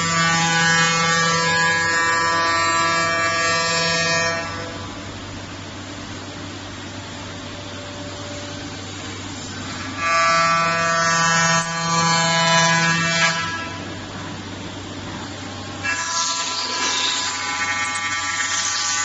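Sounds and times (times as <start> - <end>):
machine hum: 0.0 - 19.0
router spindle whine: 15.5 - 19.0.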